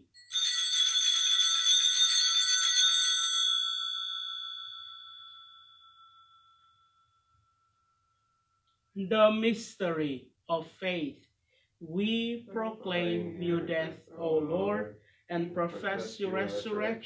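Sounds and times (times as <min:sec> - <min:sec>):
altar bells ringing: 0:00.1 - 0:07.9.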